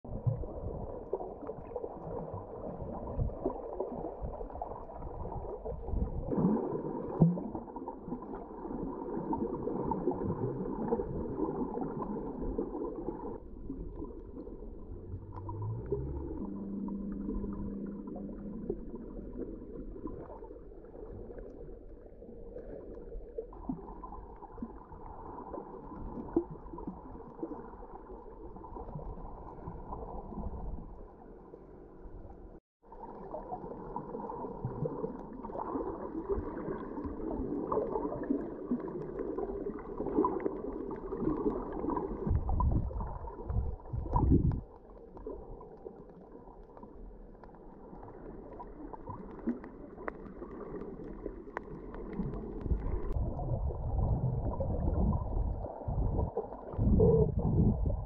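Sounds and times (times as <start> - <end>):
heavy low water surges: 0.1 - 20.4, 47.4 - 58.0
muffled underwater water sloshing: 0.1 - 58.0.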